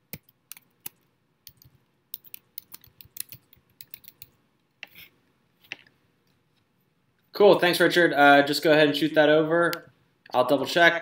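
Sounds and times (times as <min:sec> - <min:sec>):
computer keyboard typing: 0:00.1 - 0:04.4.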